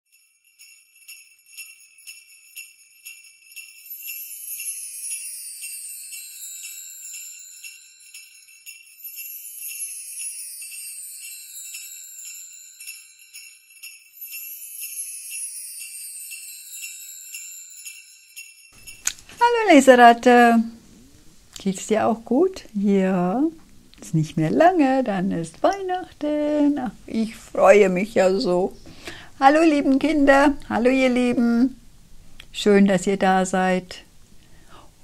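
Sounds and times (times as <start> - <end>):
glittering chime sweep: 0.1 - 19.6
sleigh bells jingling: 0.1 - 20.7.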